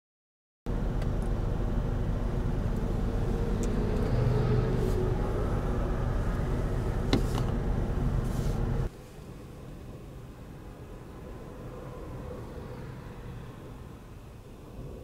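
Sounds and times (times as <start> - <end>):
vehicle engine idling: 0.7 - 8.9.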